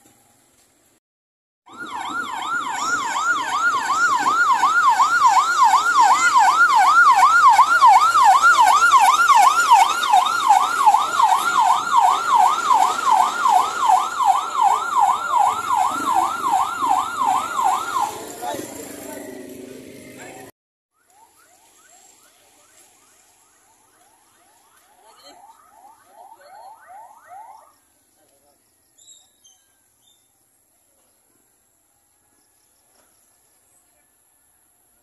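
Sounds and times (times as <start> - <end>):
fire truck siren yelping: 1.7 - 19.2, 20.9 - 27.8.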